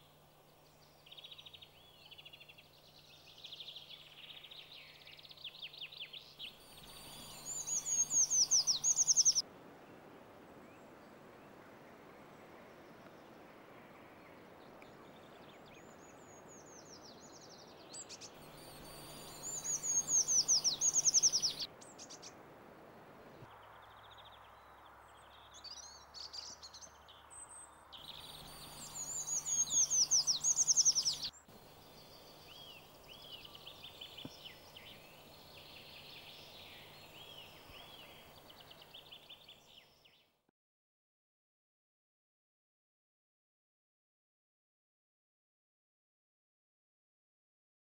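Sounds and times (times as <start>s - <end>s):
faint high bird calls: 0.0s - 9.4s, 10.6s - 22.4s, 23.2s - 40.1s
bird song high falling notes: 6.0s - 9.4s, 18.4s - 22.2s, 27.9s - 39.4s.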